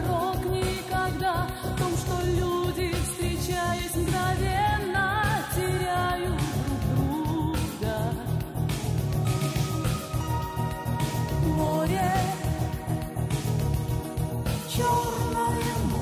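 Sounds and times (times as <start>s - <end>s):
person singing pop song: 0.0s - 16.0s
band backing with steady beat: 6.4s - 16.0s.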